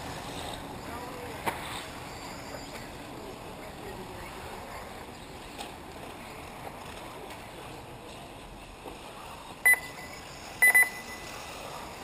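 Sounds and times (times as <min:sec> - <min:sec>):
electronic beeps: 0:09.6 - 0:11.5.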